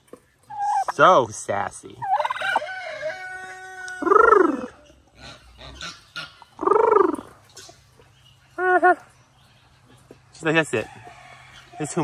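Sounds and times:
fowl calling: 2.0s - 7.8s, 8.6s - 9.1s.

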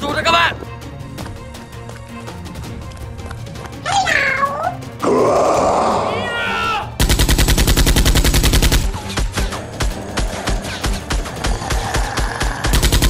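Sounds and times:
rapid gunfire sound effects: 7.0s - 13.0s.

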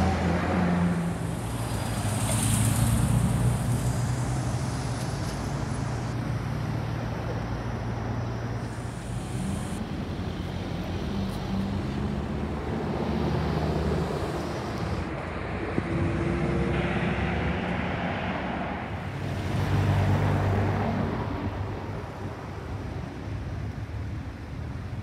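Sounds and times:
slow traffic passing close: 0.0s - 25.0s.

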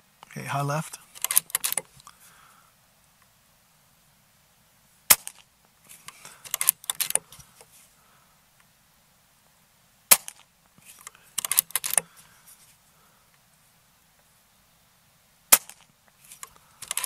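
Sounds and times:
rifle lever clicks and clacks: 1.2s - 1.9s, 6.1s - 7.3s, 11.0s - 12.1s, 16.4s - 17.0s
air rifle shot: 10.1s - 10.4s, 15.5s - 15.8s.

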